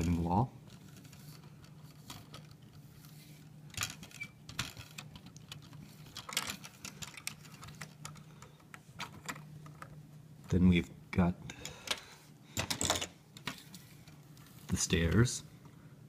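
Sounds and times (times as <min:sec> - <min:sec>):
plastic bricks clicking and rattling: 0:03.7 - 0:09.9.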